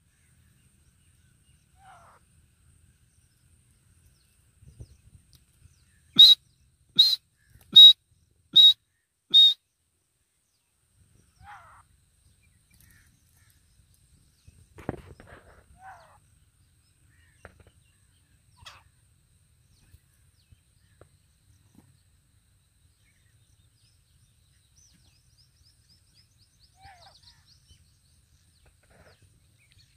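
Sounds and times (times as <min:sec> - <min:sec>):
faint bird calls: 0:01.6 - 0:02.3, 0:05.8 - 0:08.0, 0:08.6 - 0:09.6, 0:11.2 - 0:11.9, 0:12.5 - 0:16.4, 0:17.0 - 0:19.0, 0:26.6 - 0:27.8.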